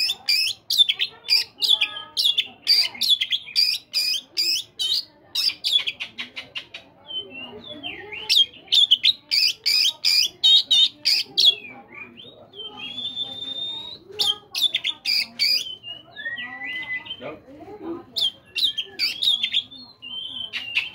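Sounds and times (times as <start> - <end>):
bird singing: 0.0 - 17.4, 18.1 - 20.9.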